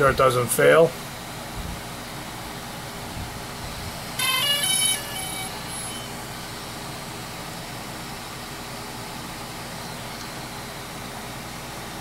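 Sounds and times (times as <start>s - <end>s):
steady background hiss: 0.0s - 11.8s
electronic start-up chime: 4.2s - 7.1s.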